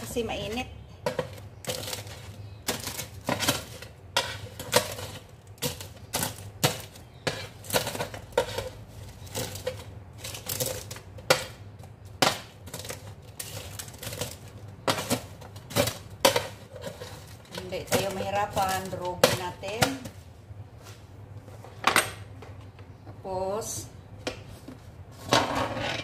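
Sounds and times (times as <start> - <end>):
metal fork scraping metal tray: 7.2 - 10.9.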